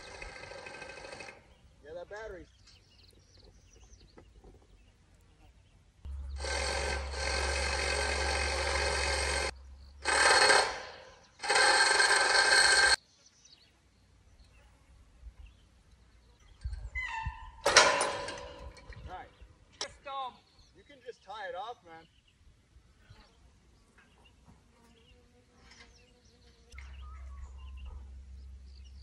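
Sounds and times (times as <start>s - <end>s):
ringing mechanical whine: 6.1s - 13.0s.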